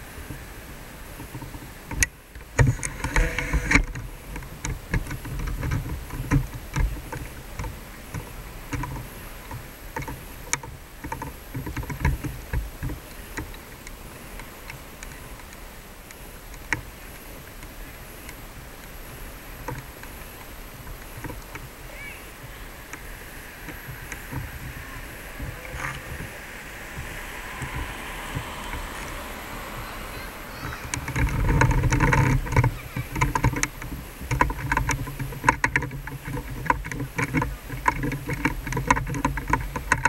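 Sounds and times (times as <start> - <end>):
faint street noise: 0.0 - 40.0
camera handling rumble and knocks: 1.4 - 13.8, 30.6 - 40.0.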